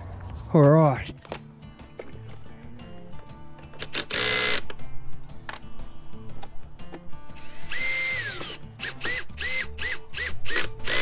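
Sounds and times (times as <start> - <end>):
cordless driver motor whine: 3.8 - 4.8, 7.3 - 11.0.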